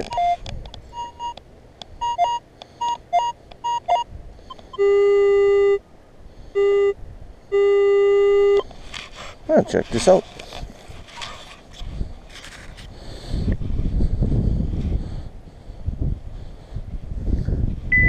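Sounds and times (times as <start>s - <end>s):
metal detector beeping: 0.0s - 1.4s, 2.0s - 5.8s, 6.6s - 8.7s.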